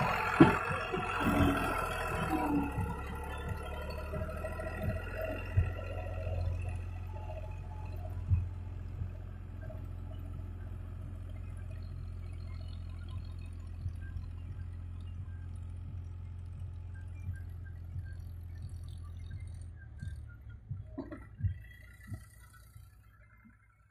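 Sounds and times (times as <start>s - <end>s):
thumps: 0.0s - 11.4s, 15.4s - 22.9s
tractor diesel engine drone: 0.0s - 23.9s.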